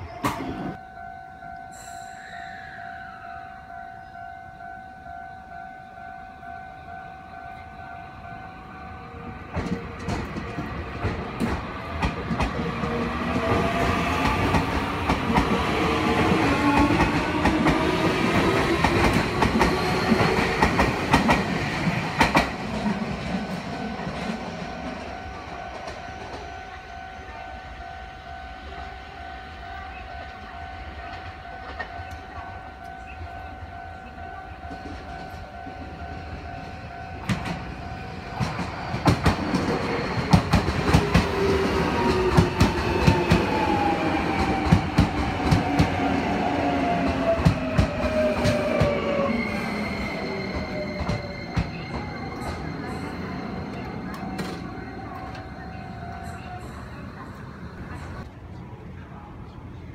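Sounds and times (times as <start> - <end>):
level-crossing warning bell ringing: 0.7 - 58.2
train wheels clacking over rail joints: 9.5 - 22.9.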